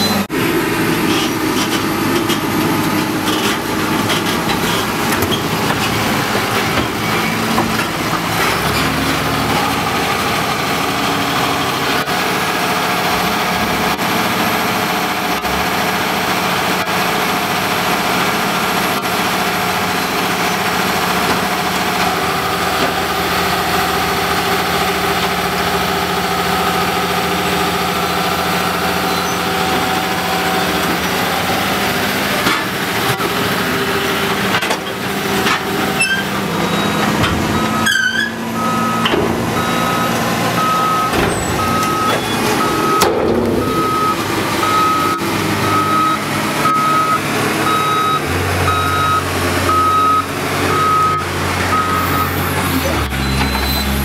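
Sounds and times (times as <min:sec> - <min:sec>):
diesel farm machinery running: 0:00.0 - 0:54.0
reversing alarm beeping: 0:36.0 - 0:54.0.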